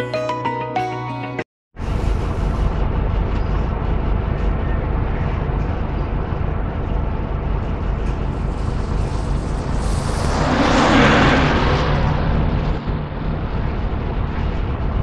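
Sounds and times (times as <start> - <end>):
wind and road noise: 6.6 - 15.0.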